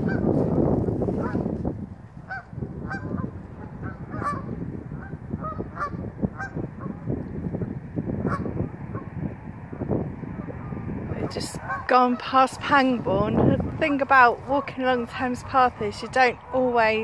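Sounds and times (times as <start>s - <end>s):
geese honking: 0.0s - 0.6s, 2.2s - 7.1s, 8.2s - 9.1s, 10.4s - 16.9s.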